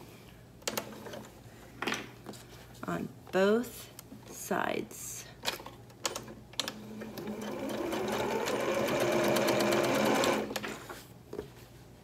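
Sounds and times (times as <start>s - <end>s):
sewing machine stitching: 6.1s - 10.6s.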